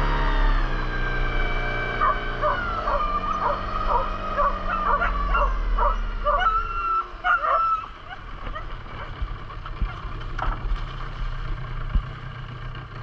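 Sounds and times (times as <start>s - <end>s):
boat motor droning: 0.0s - 13.0s
dogs yelping and whining: 1.9s - 9.2s.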